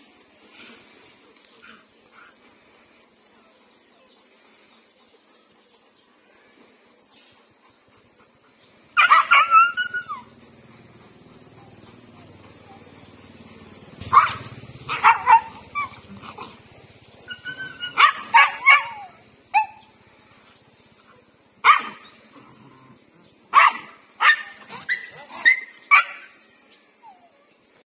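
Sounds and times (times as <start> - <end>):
dog barking and yelping: 9.0 - 10.5, 14.0 - 16.6, 17.2 - 19.9, 21.6 - 22.0, 23.5 - 27.3.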